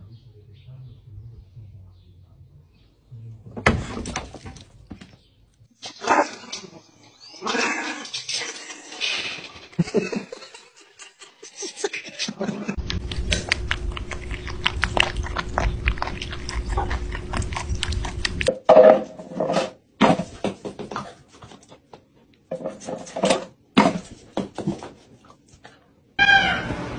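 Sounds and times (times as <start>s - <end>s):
cat crunching dry kibble: 12.8s - 18.5s
low rumble: 12.8s - 18.5s.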